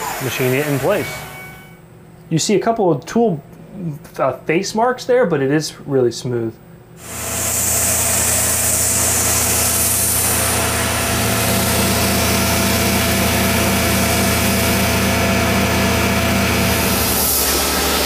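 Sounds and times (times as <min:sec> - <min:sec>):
hiss of metal cutting: 0:00.0 - 0:01.6, 0:07.0 - 0:15.0, 0:15.8 - 0:18.0
mill spindle hum and whine: 0:00.0 - 0:18.0.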